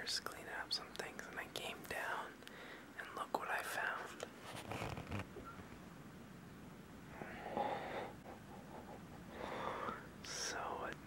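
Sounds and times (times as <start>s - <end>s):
soft breathing or snorting: 7.1s - 10.6s.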